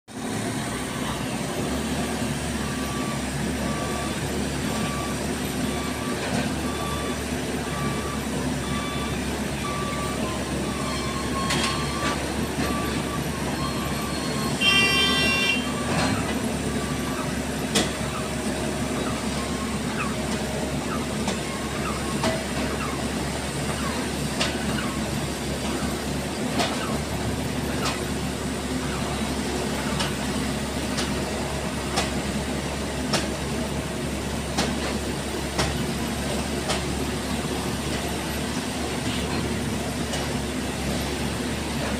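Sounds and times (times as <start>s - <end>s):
diesel engines running: 0.1s - 41.9s
reversing alarm beeps: 2.5s - 26.0s
truck horn toot: 13.7s - 16.3s.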